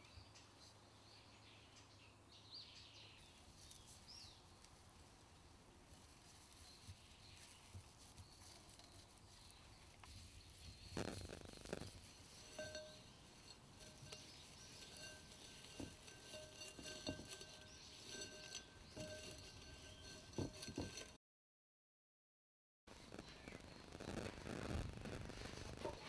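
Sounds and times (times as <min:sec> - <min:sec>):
straw rustling: 0:05.8 - 0:21.2.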